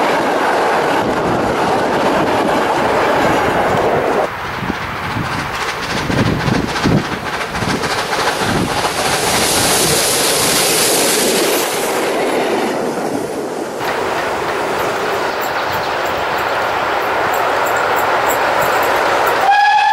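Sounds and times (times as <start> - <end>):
model train wheels rattling on rails: 4.5 - 12.2
high hiss: 7.7 - 12.4.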